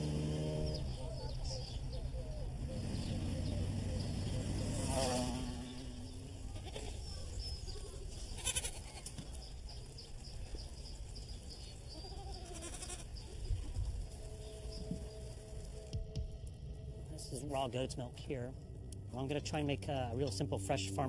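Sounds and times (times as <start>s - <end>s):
goats bleating: 6.3s - 7.1s, 8.3s - 9.2s, 11.9s - 13.2s.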